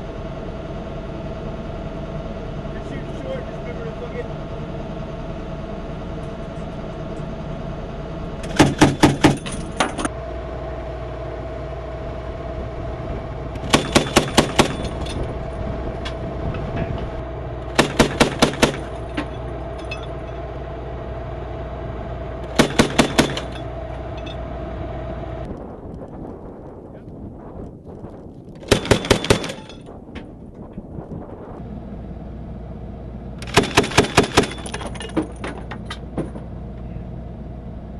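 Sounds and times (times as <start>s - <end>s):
vehicle hum: 0.0s - 37.9s
grenade launcher firing bursts: 13.6s - 15.0s, 17.7s - 19.0s, 22.5s - 23.6s, 28.6s - 29.8s, 33.4s - 34.7s.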